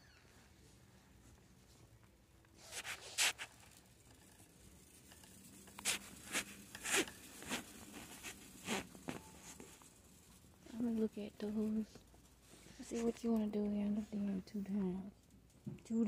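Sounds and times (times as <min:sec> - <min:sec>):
phone rubbing against sweater: 0:02.6 - 0:03.5, 0:05.8 - 0:09.8.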